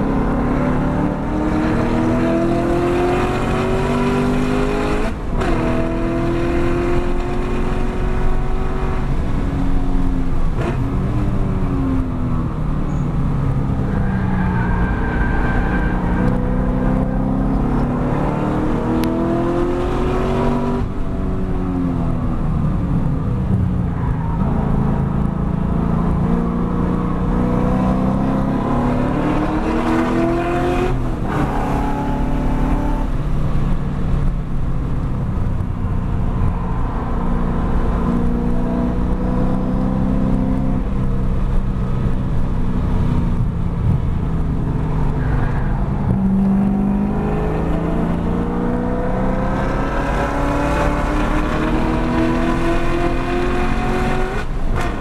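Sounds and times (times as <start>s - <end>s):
car engine revving hard: 0.0s - 9.1s, 25.8s - 33.2s, 46.0s - 55.0s.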